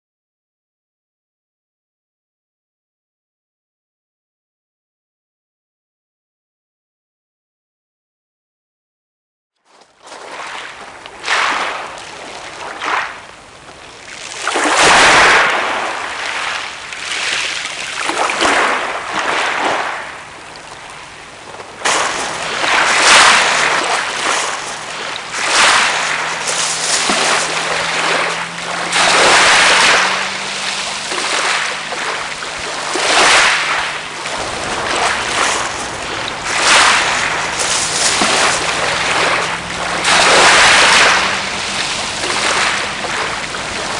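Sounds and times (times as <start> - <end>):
waves washing up shingle beach: 9.7 - 43.9.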